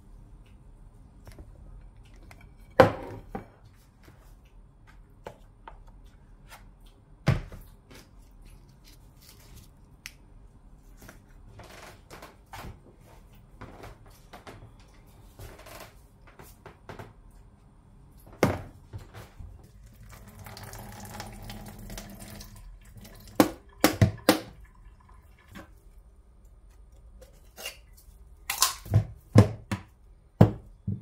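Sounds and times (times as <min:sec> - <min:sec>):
items knocking on countertop: 0:02.7 - 0:03.5, 0:28.9 - 0:31.0.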